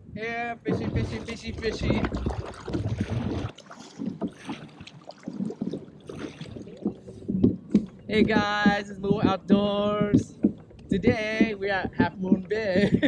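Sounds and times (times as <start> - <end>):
low rumble: 0.0 - 3.5
kayak paddle splashing in water: 0.8 - 7.2.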